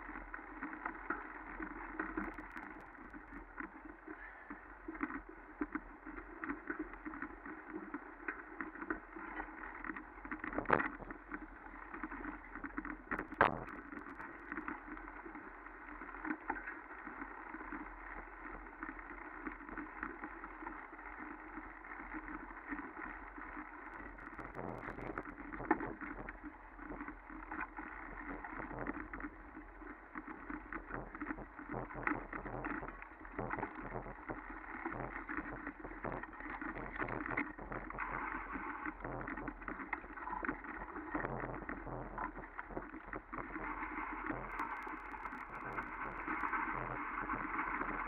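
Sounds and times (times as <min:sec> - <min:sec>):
sharp clicks: 0:44.5 - 0:46.6.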